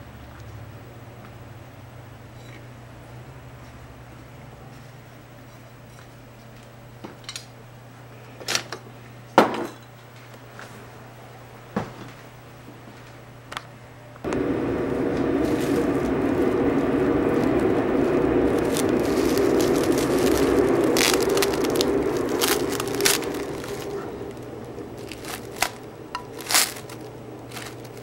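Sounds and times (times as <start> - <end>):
loud steady rushing noise: 14.2 - 28.0
plastic cling wrap crinkling: 18.5 - 28.0.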